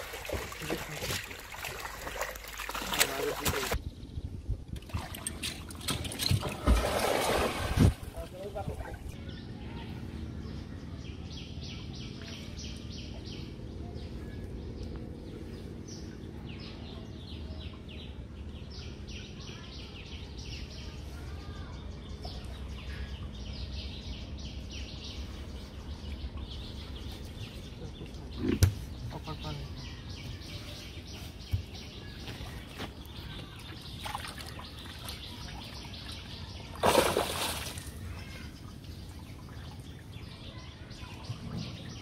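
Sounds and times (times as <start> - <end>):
low background rumble: 3.8 - 36.8
small birds chirping: 8.1 - 42.0.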